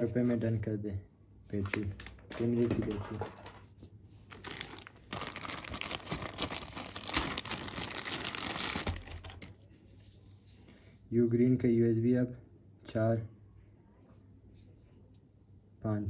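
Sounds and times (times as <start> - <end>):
plastic bag crinkling: 4.3 - 9.6.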